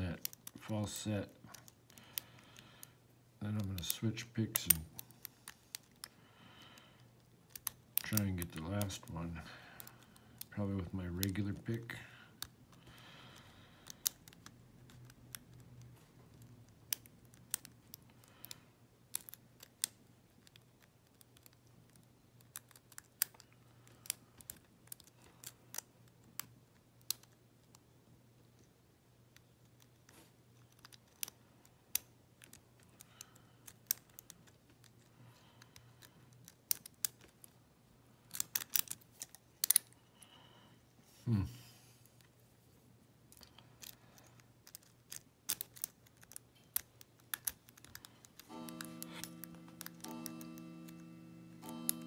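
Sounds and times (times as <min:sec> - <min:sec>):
lock pick clicking and scraping: 0:00.2 - 0:00.6, 0:03.5 - 0:06.2, 0:07.0 - 0:09.1, 0:12.4 - 0:27.8, 0:29.3 - 0:37.6, 0:38.2 - 0:40.0, 0:43.3 - 0:52.0.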